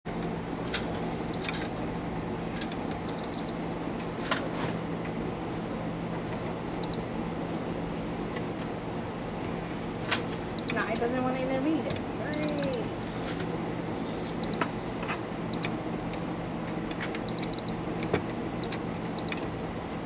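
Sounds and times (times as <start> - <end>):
steady low hum: 0.1 - 20.0
console beeps: 3.1 - 3.5, 12.3 - 12.8, 17.3 - 17.7.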